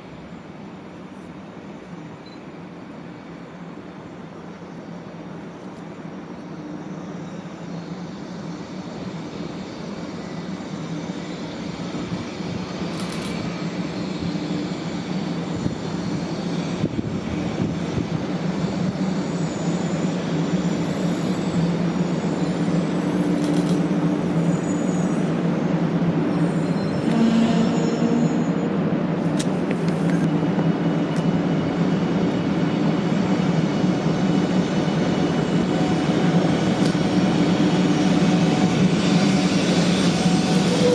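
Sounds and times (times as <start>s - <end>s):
train rolling into station: 0.0s - 40.9s.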